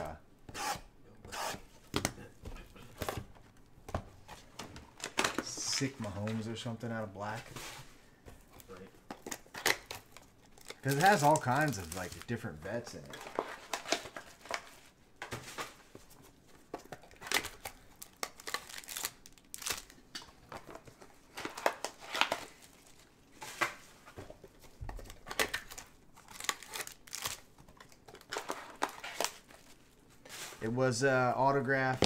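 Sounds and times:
plastic wrapping crinkling and tearing: 0:08.6 - 0:14.7, 0:17.0 - 0:20.1, 0:25.0 - 0:30.0.

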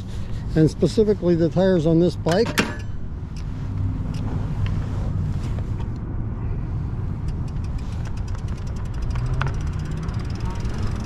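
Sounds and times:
fast light ticks: 0:07.2 - 0:11.0
bike tires rolling on pavement: 0:07.5 - 0:11.0.

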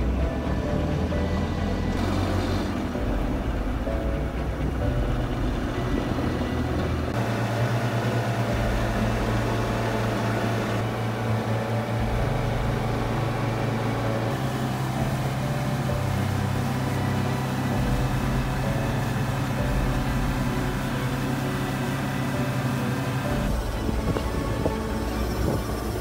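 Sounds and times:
boat engine droning: 0:00.0 - 0:26.0
wind: 0:00.0 - 0:26.0
rushing water: 0:02.0 - 0:26.0.

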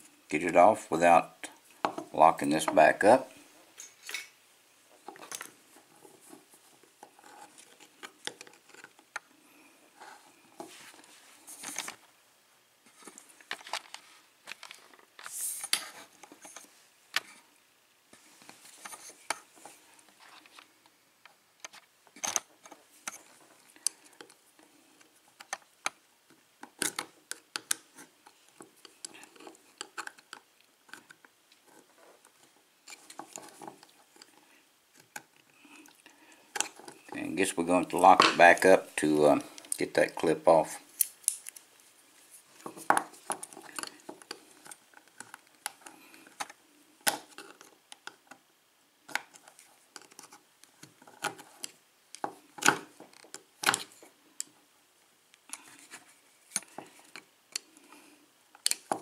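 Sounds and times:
small metallic clicks and scrapes: 0:26.6 - 0:37.2, 0:41.0 - 0:41.7, 0:49.1 - 0:54.6.

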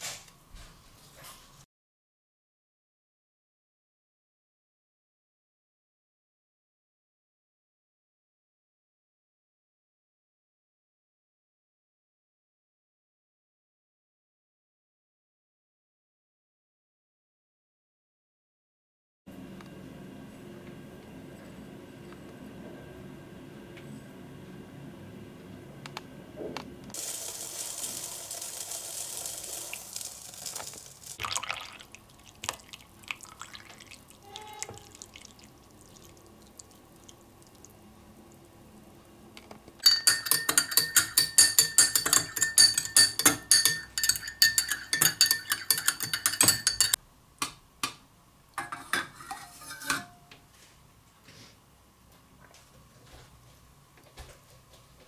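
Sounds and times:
spoon clinking in a glass: 0:39.8 - 0:47.0.

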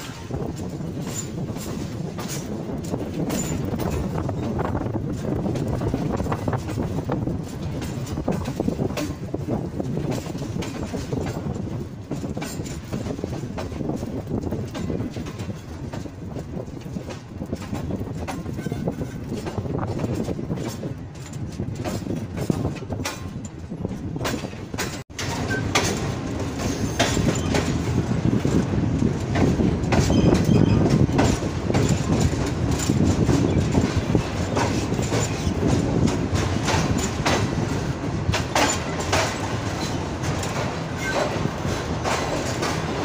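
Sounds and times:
train wheels rumbling: 0:00.0 - 0:43.0
wheels clicking over rail joints: 0:00.0 - 0:43.0
faint wheel squeal: 0:30.1 - 0:30.9.

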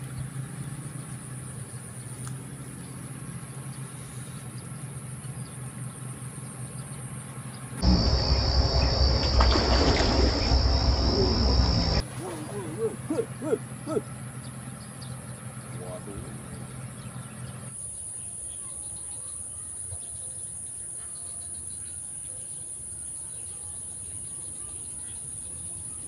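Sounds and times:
low hum: 0:00.0 - 0:17.7
insects trilling: 0:00.5 - 0:19.6
high buzz: 0:07.8 - 0:12.0
low rumble: 0:07.8 - 0:12.0.

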